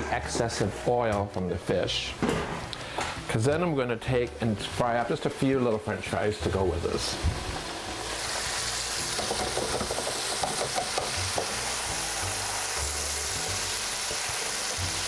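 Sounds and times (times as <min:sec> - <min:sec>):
fish fillets sizzling in oil: 0:07.0 - 0:15.0.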